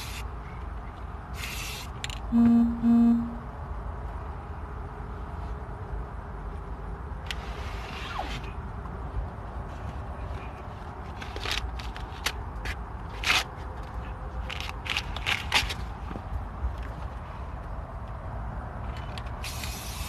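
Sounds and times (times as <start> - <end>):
spray can hissing: 1.4 - 1.9, 19.4 - 20.0.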